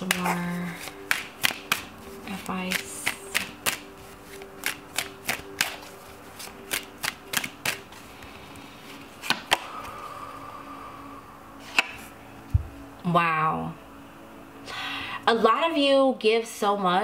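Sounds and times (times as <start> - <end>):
cards shuffling snaps: 0.0 - 7.9, 9.2 - 9.7, 11.7 - 12.0.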